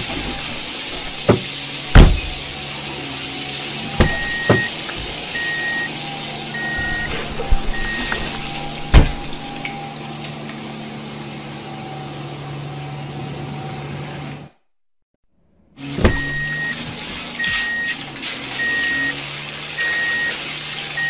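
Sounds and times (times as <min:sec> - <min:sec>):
truck engine running: 0:00.0 - 0:14.4
knocks: 0:01.0 - 0:02.5
reversing alarm beeping: 0:03.8 - 0:10.0, 0:16.1 - 0:18.0, 0:18.6 - 0:19.2, 0:19.8 - 0:21.0.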